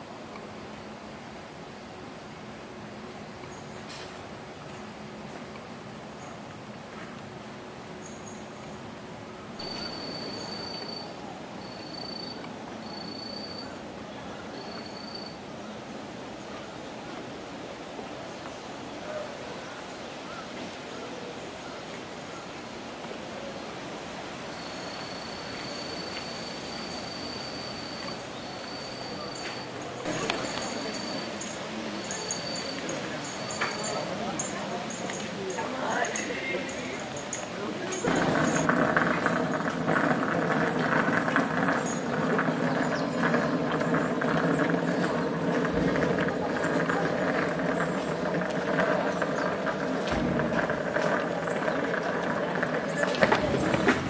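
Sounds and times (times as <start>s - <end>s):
forest background hiss: 0.0s - 38.7s
indistinct voices: 26.8s - 54.0s.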